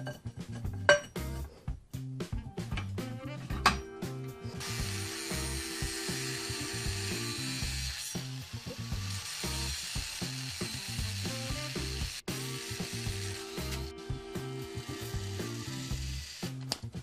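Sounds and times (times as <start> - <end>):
metal clanks at a vise: 0.0 - 1.2
background music: 0.0 - 17.0
angle grinder cutting steel: 4.5 - 16.8.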